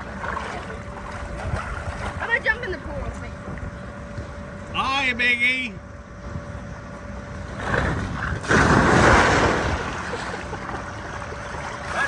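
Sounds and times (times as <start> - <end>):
water rushing and splashing: 8.4 - 10.3.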